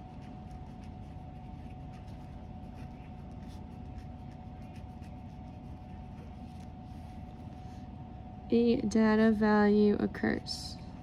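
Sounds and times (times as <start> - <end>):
pen scratching on paper: 0.0 - 6.6.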